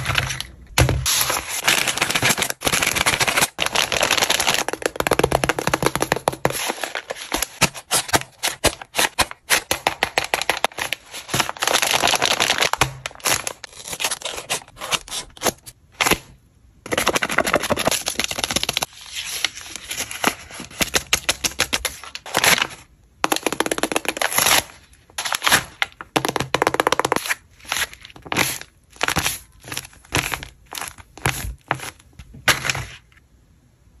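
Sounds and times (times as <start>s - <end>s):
paper rustling and crinkling: 0.0s - 4.8s, 16.9s - 22.9s.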